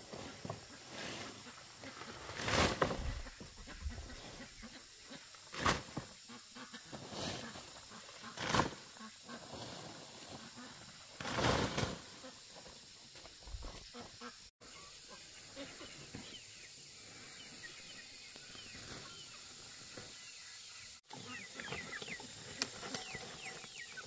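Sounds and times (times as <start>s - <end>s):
leafy branches rustling and swishing: 0.0s - 4.4s, 6.9s - 12.3s.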